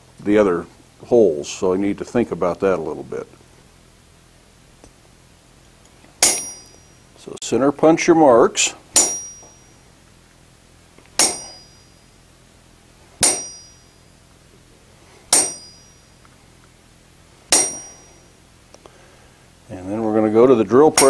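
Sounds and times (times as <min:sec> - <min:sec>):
hammer striking metal punch: 0:06.2 - 0:06.9, 0:09.0 - 0:09.7, 0:11.2 - 0:12.0, 0:13.2 - 0:14.0, 0:15.3 - 0:16.2, 0:17.5 - 0:18.2.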